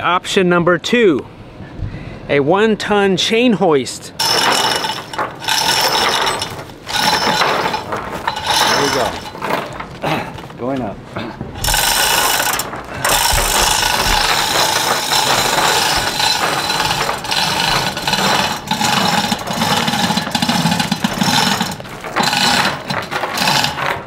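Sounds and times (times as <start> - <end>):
chain hoist rattling: 4.2 - 10.0, 11.6 - 24.0.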